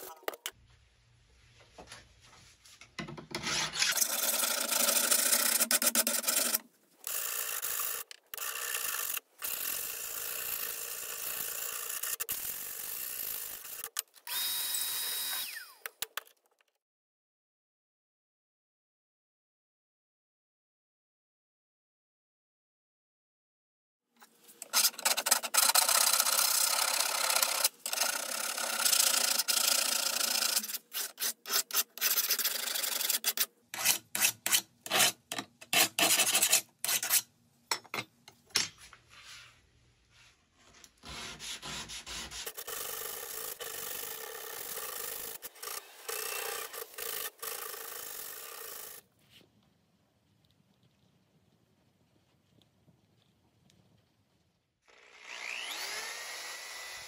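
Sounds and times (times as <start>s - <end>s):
abrasive pad scrubbing knife blade: 30.6s - 37.2s.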